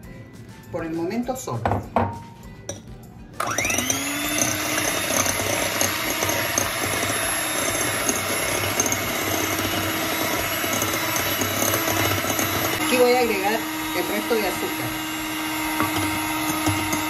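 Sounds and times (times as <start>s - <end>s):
electric hand mixer beating: 3.4s - 17.0s.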